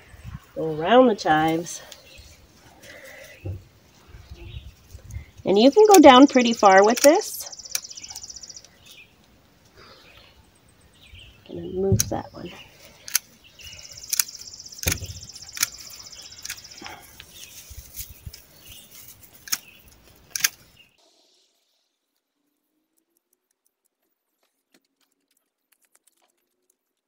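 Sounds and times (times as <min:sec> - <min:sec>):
pruners snapping shut: 0:14.0 - 0:17.0, 0:19.4 - 0:19.7, 0:20.3 - 0:20.7.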